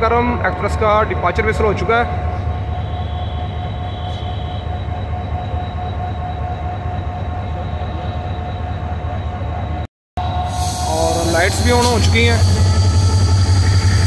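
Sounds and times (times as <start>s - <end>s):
diesel locomotive rumbling: 0.0s - 14.0s
train whistle: 2.2s - 9.0s, 10.2s - 14.0s.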